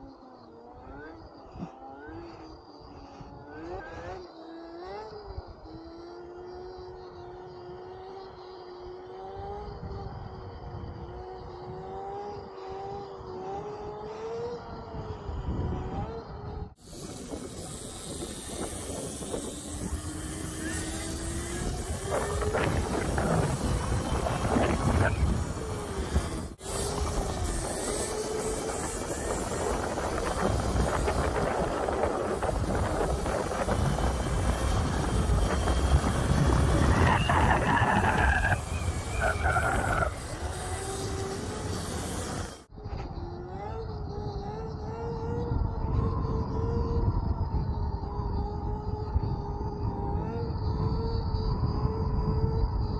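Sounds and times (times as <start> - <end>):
wind rumble on microphone: 6.8 - 52.9
electric motor whining: 11.0 - 47.0.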